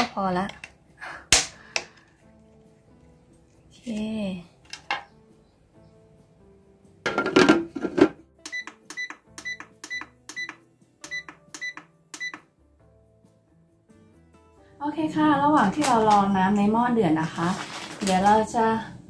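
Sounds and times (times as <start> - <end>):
electronic control panel beeps: 8.4 - 12.5.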